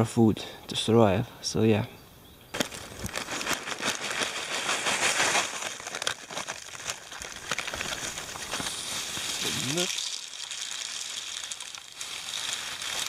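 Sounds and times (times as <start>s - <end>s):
plastic bag rustling and crinkling: 2.6s - 13.0s.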